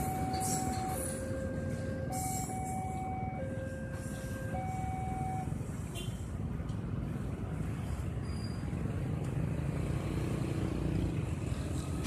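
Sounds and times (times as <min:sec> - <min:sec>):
level crossing two-tone alarm: 0:00.0 - 0:05.5.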